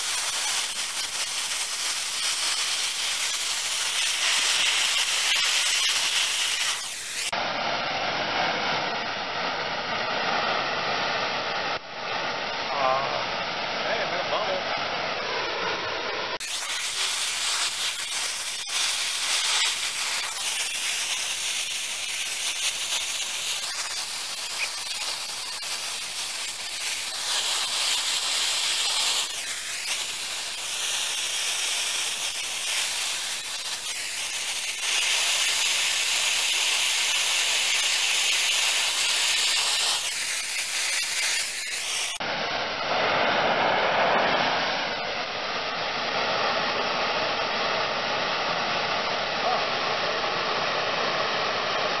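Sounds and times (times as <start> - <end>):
torch flame hissing: 0.0 - 7.4, 16.4 - 42.3.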